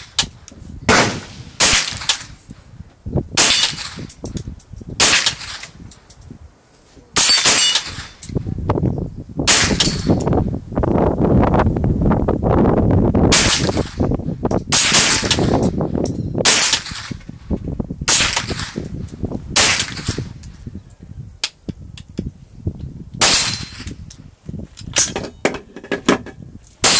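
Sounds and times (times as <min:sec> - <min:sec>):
rifle shots: 0:00.9 - 0:02.4, 0:03.4 - 0:04.1, 0:05.0 - 0:05.7, 0:07.2 - 0:08.2, 0:09.5 - 0:10.2, 0:13.3 - 0:14.1, 0:14.7 - 0:15.7, 0:16.4 - 0:17.2, 0:18.1 - 0:18.9, 0:19.6 - 0:20.3, 0:23.2 - 0:23.9.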